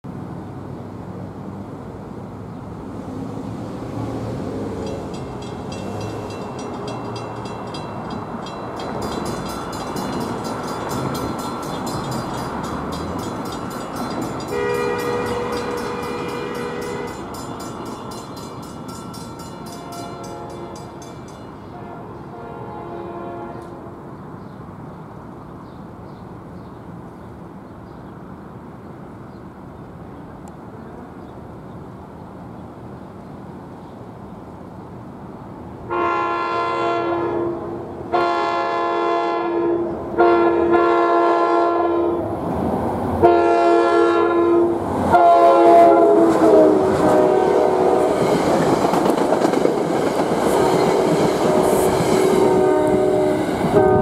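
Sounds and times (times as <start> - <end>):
grade-crossing bell ringing: 4.7 - 21.8
locomotive air horn blasts: 14.5 - 17.3, 19.7 - 21.0, 21.7 - 23.9, 35.9 - 42.2, 43.2 - 48.3, 50.5 - 54.0.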